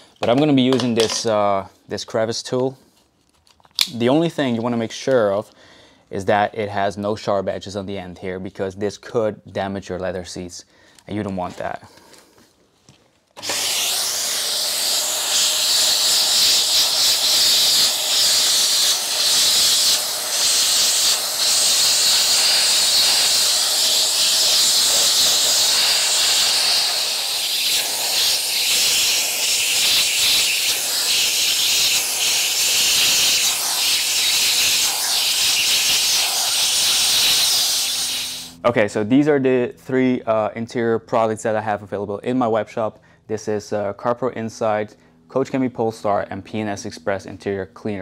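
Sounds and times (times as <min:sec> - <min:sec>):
vacuum cleaner suction hiss: 0:13.4 - 0:38.6.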